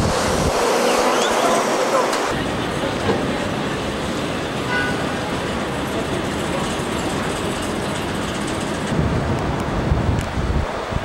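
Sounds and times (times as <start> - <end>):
escalator machinery running: 0.0 - 10.0
street traffic rumble: 0.0 - 11.0.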